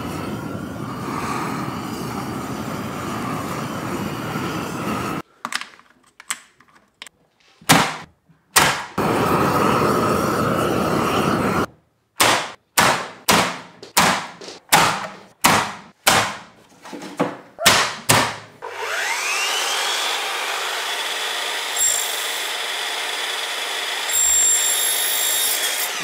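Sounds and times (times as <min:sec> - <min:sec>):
sharp knocks: 0:12.2 - 0:16.5, 0:17.6 - 0:18.5
mitre saw cutting wood: 0:18.6 - 0:26.0.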